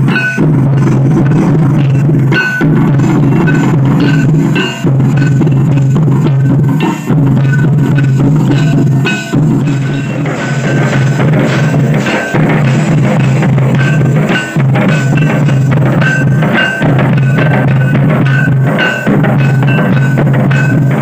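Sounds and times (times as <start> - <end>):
barrel drums playing: 0.0 - 21.0.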